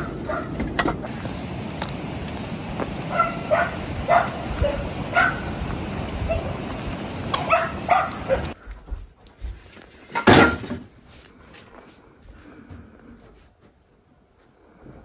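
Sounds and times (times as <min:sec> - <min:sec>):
dog barking: 0:00.0 - 0:00.6, 0:03.1 - 0:05.6, 0:06.2 - 0:08.6
outdoor background noise: 0:00.0 - 0:15.0.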